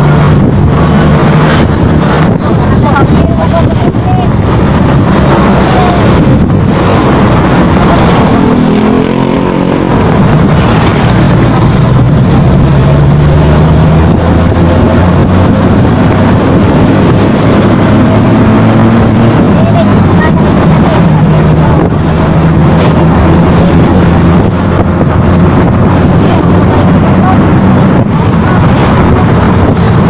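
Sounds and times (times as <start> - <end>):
motorcycle engine accelerating: 0.0 - 30.0
wind rushing over microphone: 0.0 - 30.0.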